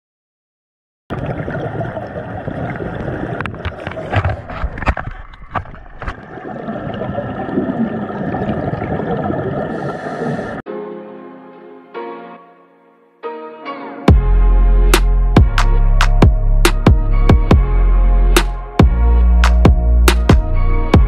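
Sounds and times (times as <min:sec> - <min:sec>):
exhaust bubbles gurgling: 0:01.1 - 0:10.6
muffled underwater rumble: 0:01.1 - 0:10.6
diver's regulator breathing: 0:09.6 - 0:10.6.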